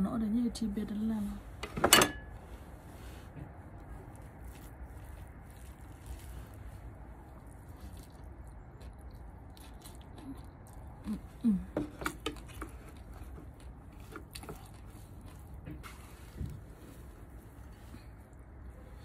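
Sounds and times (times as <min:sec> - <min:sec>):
person chewing and lip-smacking: 0:07.3 - 0:15.6.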